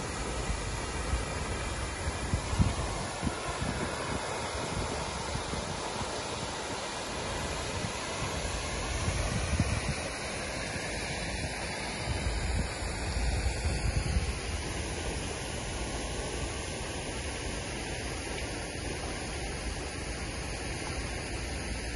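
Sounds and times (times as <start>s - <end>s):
fountain water falling into pond: 0.0s - 21.9s
wind buffeting microphone: 0.1s - 15.0s.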